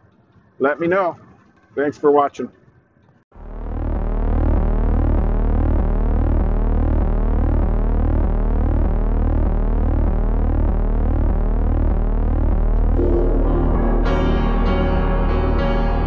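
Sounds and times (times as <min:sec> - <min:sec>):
pulsing synthesizer drone: 0:03.4 - 0:16.0
rising synth sweep: 0:03.4 - 0:16.0.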